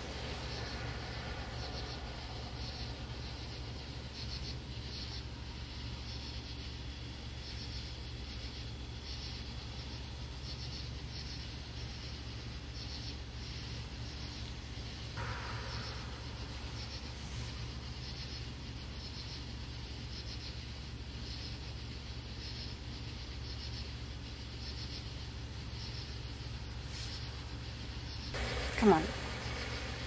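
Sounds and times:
low hum: 0.0s - 6.1s, 15.1s - 20.1s, 28.3s - 30.0s
crickets chirping: 0.0s - 30.0s.

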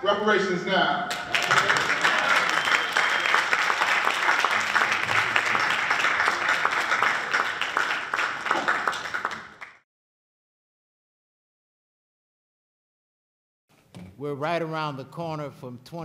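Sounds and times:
audience applause: 1.1s - 9.8s.

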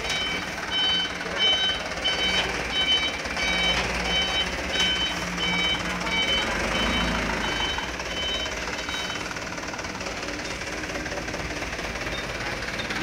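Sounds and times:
truck reversing alarm beeping: 0.0s - 10.2s, 10.8s - 13.0s
diesel truck engine running: 0.0s - 13.0s.

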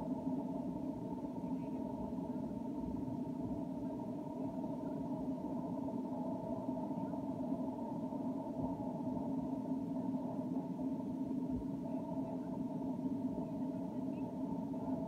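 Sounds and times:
muffled low rumbling: 0.0s - 15.0s.

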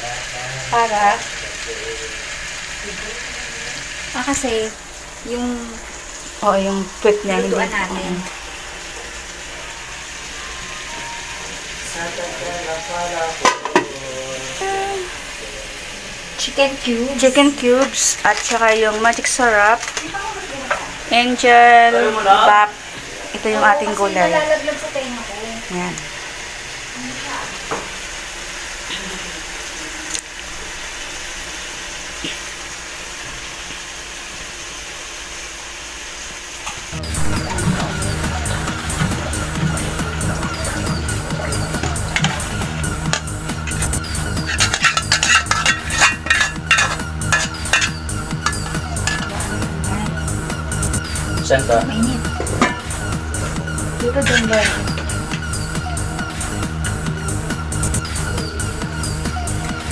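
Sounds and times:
meat frying in oil: 0.0s - 59.9s
faint voices: 37.0s - 57.4s.

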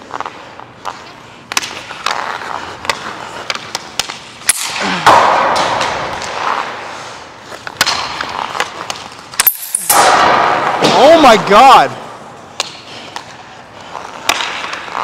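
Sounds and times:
skates scraping on ice: 0.0s - 9.5s, 10.2s - 15.0s
stick and puck knocks: 1.5s - 6.9s, 7.5s - 11.4s, 12.5s - 13.4s, 14.1s - 15.0s.

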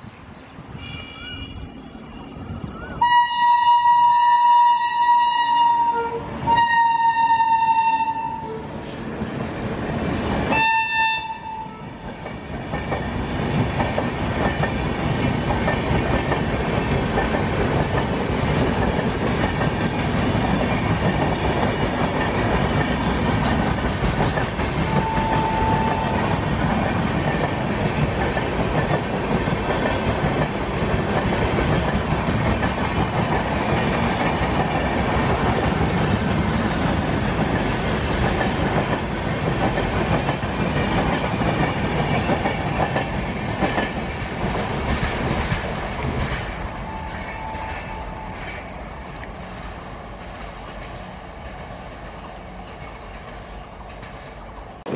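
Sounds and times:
train coaches rumbling and clacking: 0.0s - 54.9s
train horn: 0.7s - 8.8s, 10.5s - 12.0s, 24.8s - 26.3s.

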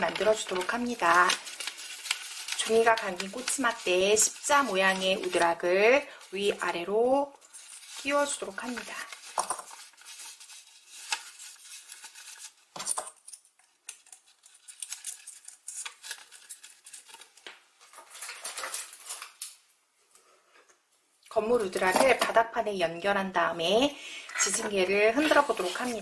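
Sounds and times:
paper rustling: 0.0s - 12.7s, 13.9s - 19.5s, 24.6s - 26.0s.

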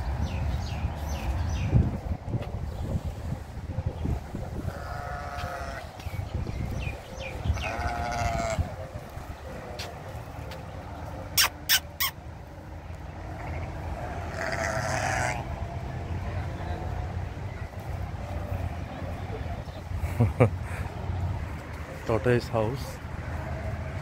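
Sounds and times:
goats and sheep bleating: 4.6s - 6.0s, 7.2s - 9.9s, 13.2s - 15.6s, 23.2s - 24.0s.

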